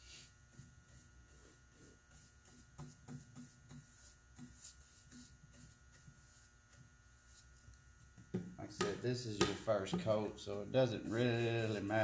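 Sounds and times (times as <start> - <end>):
paintbrush swishing on wood: 0.0 - 7.6, 10.8 - 12.0
faint steady hum: 0.0 - 12.0.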